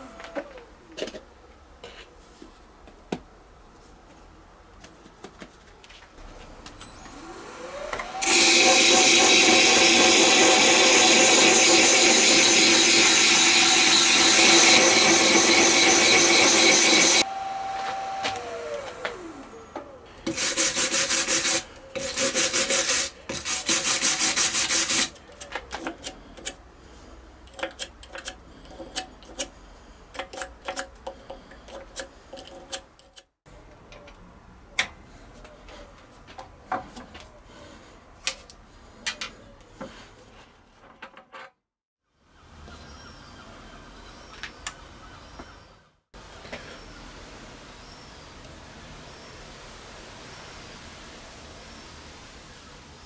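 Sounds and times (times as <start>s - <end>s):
lathe motor whine: 6.8s - 20.6s
tool rubbing on lathe blank: 8.1s - 19.2s, 20.3s - 25.1s.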